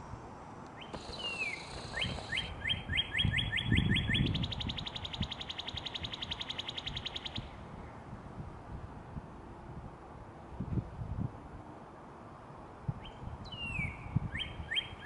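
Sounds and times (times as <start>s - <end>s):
cardinal whistled song and trill: 0.8s - 7.5s, 13.0s - 15.0s.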